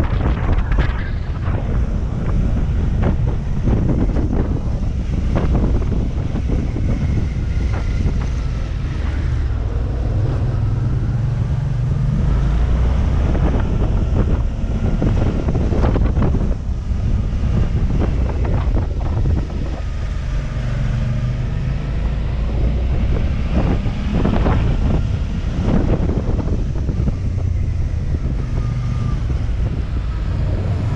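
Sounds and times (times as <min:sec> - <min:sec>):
wind buffeting microphone: 0:00.0 - 0:30.9.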